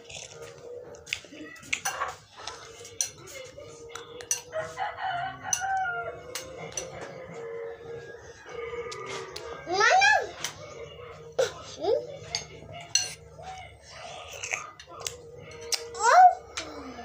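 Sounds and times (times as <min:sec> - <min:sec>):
rooster crowing: 0:04.5 - 0:06.4.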